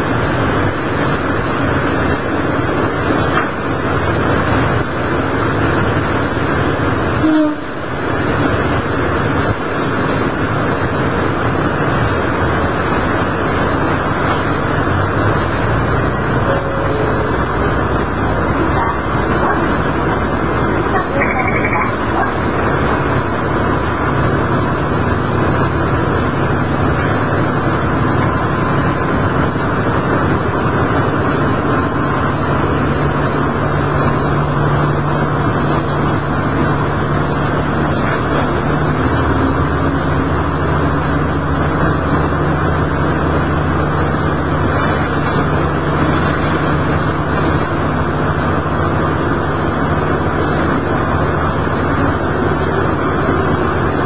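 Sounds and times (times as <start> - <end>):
railcar engine drone: 0.0 - 54.0
wheel and rail noise: 0.0 - 54.0.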